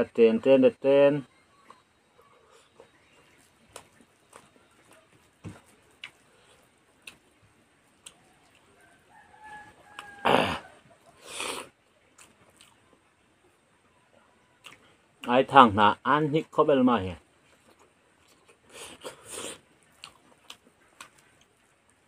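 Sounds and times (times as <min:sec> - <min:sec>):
chewing and eating clicks: 0:02.8 - 0:07.3, 0:12.1 - 0:13.0, 0:14.6 - 0:15.3, 0:19.9 - 0:22.0
harsh animal call: 0:10.0 - 0:11.7.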